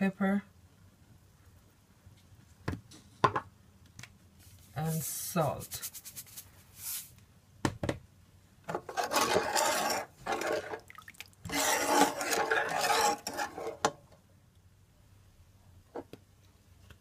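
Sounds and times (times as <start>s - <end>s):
metal spoon scraping a pot: 8.8s - 14.1s.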